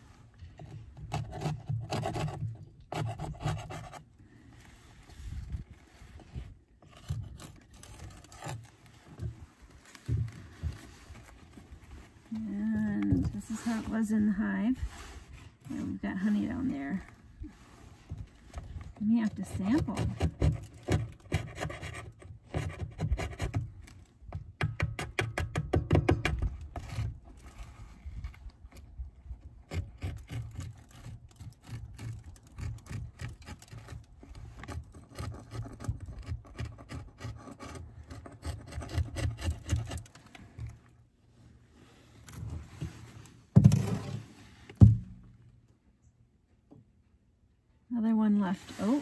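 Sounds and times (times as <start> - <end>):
sharp wooden knocks: 24.6 - 26.5.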